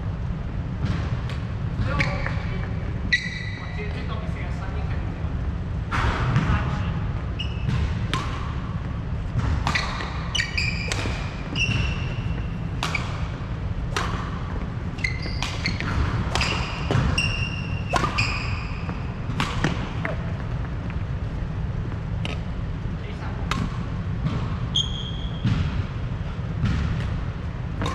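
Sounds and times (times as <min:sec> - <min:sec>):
steady low rumble: 0:00.0 - 0:03.1, 0:03.7 - 0:10.3
shoes squeaking on wooden floor: 0:01.8 - 0:03.8, 0:09.7 - 0:13.1, 0:15.0 - 0:19.2, 0:24.7 - 0:25.4
racket striking shuttlecock: 0:07.6 - 0:08.6, 0:09.3 - 0:20.5.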